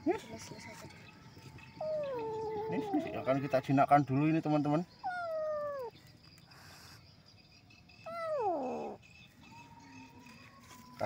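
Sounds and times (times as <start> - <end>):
cat meowing: 5.0 - 5.9, 8.1 - 9.0.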